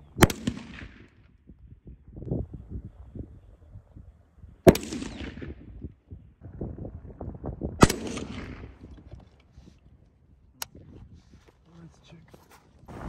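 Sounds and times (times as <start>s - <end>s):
rifle shots echoing: 0.1s - 1.2s, 4.6s - 5.7s, 7.8s - 8.8s.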